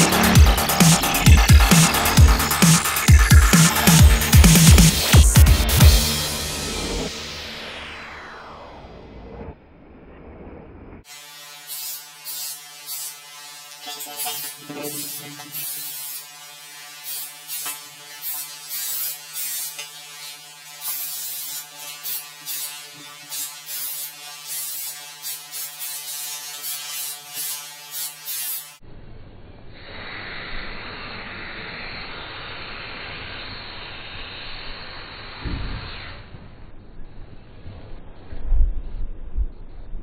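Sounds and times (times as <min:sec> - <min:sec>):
spray-paint can hissing: 0:00.0 - 0:06.4, 0:11.0 - 0:28.8, 0:29.9 - 0:36.3
steady rushing noise: 0:00.0 - 0:11.1.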